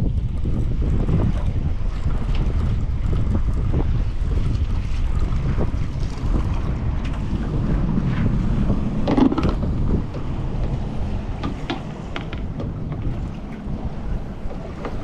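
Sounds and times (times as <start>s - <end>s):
water washing around hull: 0.0s - 15.0s
wind buffeting microphone: 0.0s - 15.0s
heavy bump: 5.2s - 13.8s.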